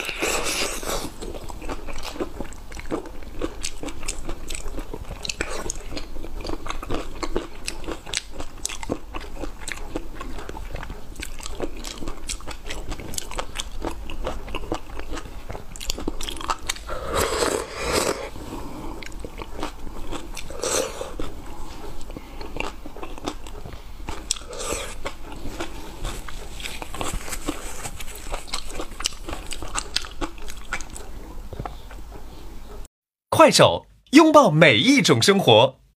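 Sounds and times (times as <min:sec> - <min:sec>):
wet chewing and lip smacking: 0:00.0 - 0:18.3, 0:18.9 - 0:32.3
loud slurps: 0:16.7 - 0:19.2.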